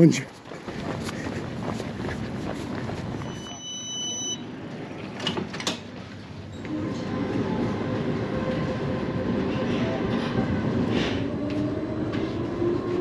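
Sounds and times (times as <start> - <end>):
hurried footsteps: 0.0 - 3.5
tram motors humming: 0.6 - 13.0
door warning beep: 3.2 - 4.5.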